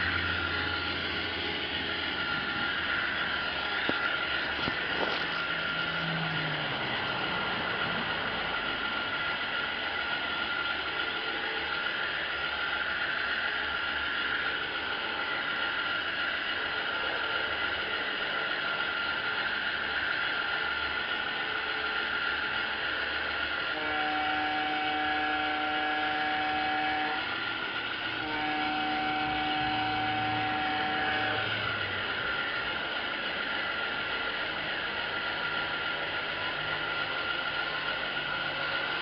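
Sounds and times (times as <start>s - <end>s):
multi-note train horn: 0.0s - 6.5s, 23.6s - 32.7s
model train motor and wheels: 0.0s - 39.0s.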